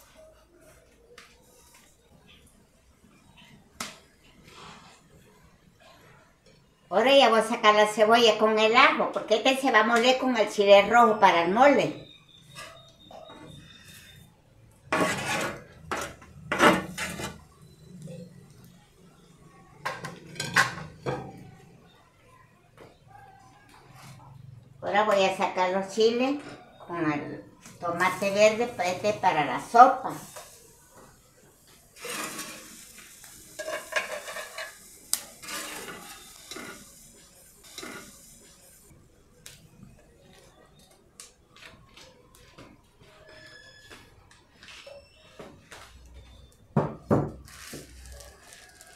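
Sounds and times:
metal spatula scraping clay: 0:14.9 - 0:17.5, 0:32.0 - 0:32.7
spatula scraping clay griddle: 0:14.9 - 0:17.5, 0:32.0 - 0:38.9.

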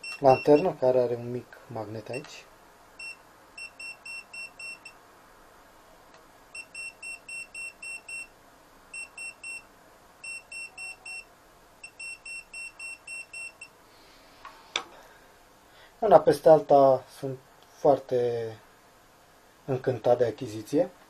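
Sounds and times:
voltage detector beeping: 0:00.0 - 0:00.7, 0:03.0 - 0:05.0, 0:06.6 - 0:08.3, 0:09.0 - 0:09.6, 0:10.2 - 0:13.7.

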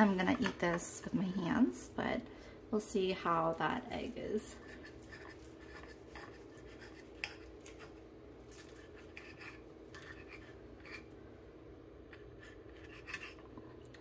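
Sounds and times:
knife scraping on plate: 0:04.6 - 0:07.9, 0:08.6 - 0:11.1, 0:12.1 - 0:13.6.

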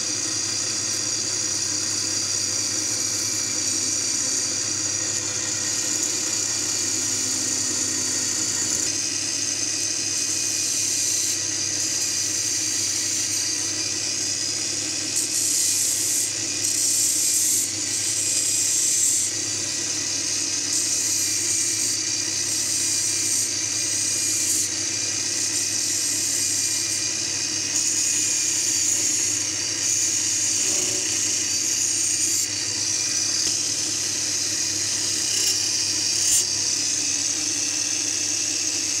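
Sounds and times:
lathe motor whining: 0:00.0 - 0:39.0
chisel scraping spinning wood: 0:26.3 - 0:37.6.

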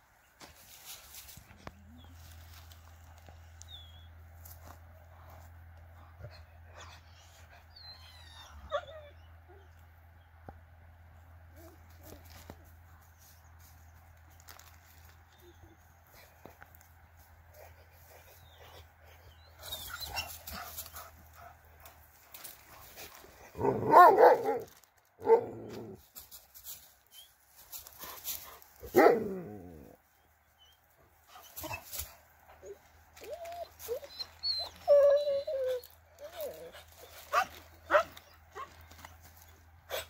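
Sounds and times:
dog whining: 0:06.8 - 0:09.7, 0:32.6 - 0:39.0
dog barking: 0:23.6 - 0:25.6, 0:28.9 - 0:29.3.

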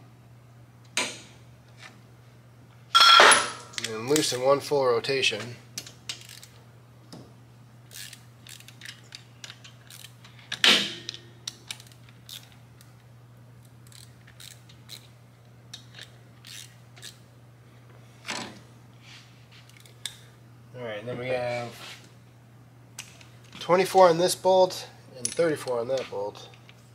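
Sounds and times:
steady hum: 0:00.0 - 0:26.9
sharp ringing click: 0:03.0 - 0:03.8
hand wrench clicking on bolts: 0:13.9 - 0:15.1, 0:15.8 - 0:17.2.

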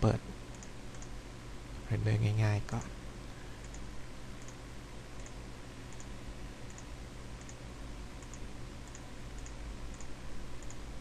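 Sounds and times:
low hum and hiss: 0:00.0 - 0:11.0
computer mouse clicks: 0:00.5 - 0:01.1, 0:03.6 - 0:04.6, 0:05.2 - 0:06.1, 0:06.7 - 0:07.6, 0:08.2 - 0:10.8.

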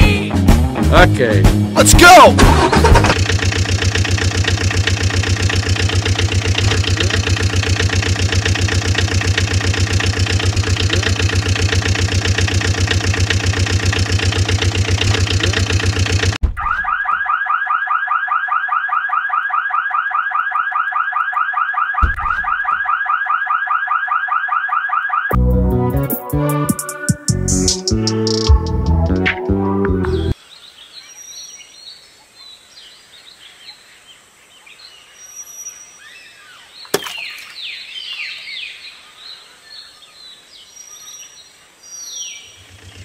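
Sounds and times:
pulsing motor drone: 0:02.4 - 0:16.4
low thump: 0:22.0 - 0:22.6.

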